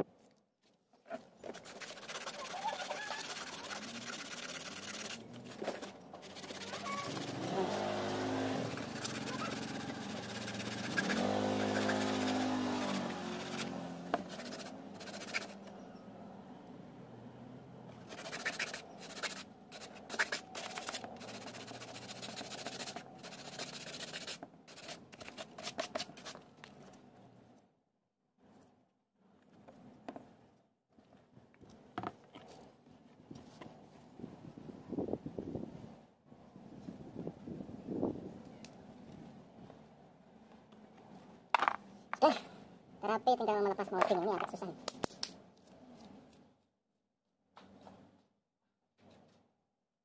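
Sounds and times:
sandpaper rasping on fiberglass: 1.4s - 15.6s, 18.0s - 26.4s
vehicle engine hum: 2.4s - 23.5s.

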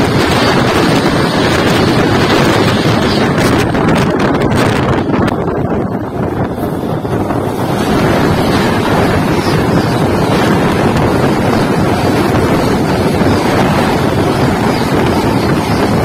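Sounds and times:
train coaches rushing past: 0.0s - 16.0s
wind buffeting microphone: 0.0s - 16.0s.

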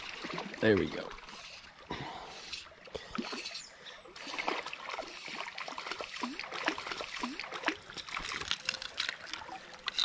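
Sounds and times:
creek running water: 0.0s - 10.0s
fish splashing at water surface: 4.2s - 9.5s.

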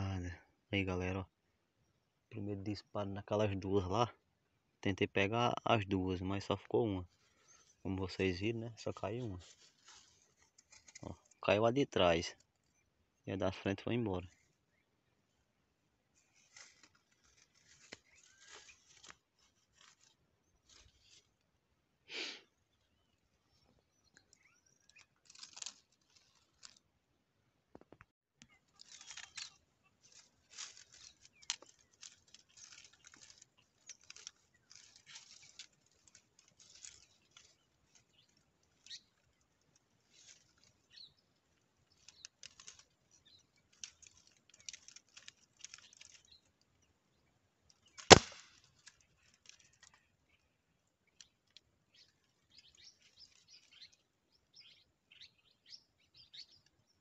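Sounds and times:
faint rustles and clicks: 7.0s - 11.5s, 16.1s - 21.5s, 23.5s - 26.9s, 27.7s - 46.7s, 47.6s - 50.4s.

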